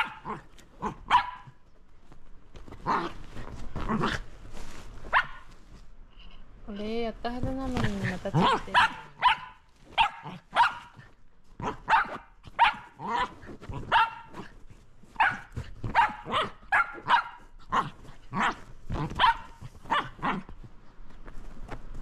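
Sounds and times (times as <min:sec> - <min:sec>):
dog barking: 0:00.0 - 0:01.6, 0:05.1 - 0:05.5, 0:08.4 - 0:11.0, 0:11.6 - 0:14.5, 0:15.2 - 0:20.5.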